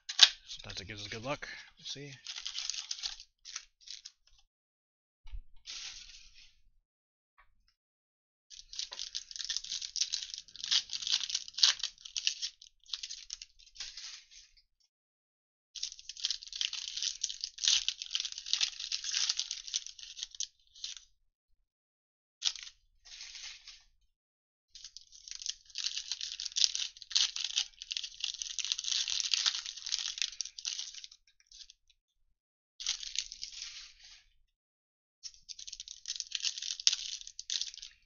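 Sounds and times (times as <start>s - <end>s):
foil wrapper crinkling and tearing: 0.0s - 4.4s, 8.5s - 14.6s, 15.8s - 21.0s, 22.4s - 23.8s, 24.8s - 31.8s, 32.8s - 34.3s, 35.3s - 38.0s.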